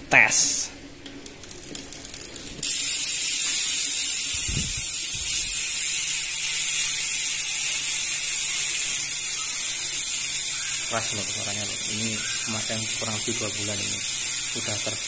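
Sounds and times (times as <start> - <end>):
bicycle hub freewheeling buzz: 1.2 - 15.0.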